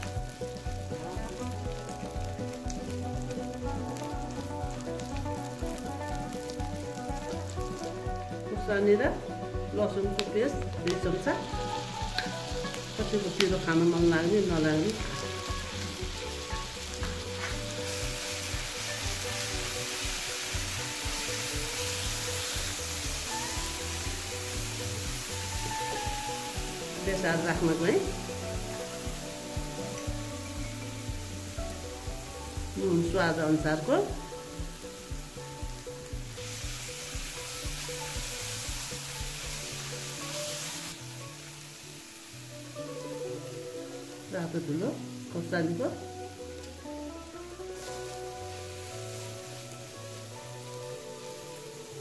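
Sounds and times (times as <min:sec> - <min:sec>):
wooden spatula stirring: 0:00.0 - 0:31.0
background music with steady beat: 0:00.0 - 0:52.0
paste sizzling in hot oil: 0:00.0 - 0:52.0.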